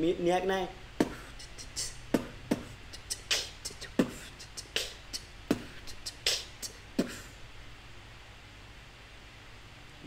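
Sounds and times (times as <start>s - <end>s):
man beatboxing: 1.0s - 7.4s.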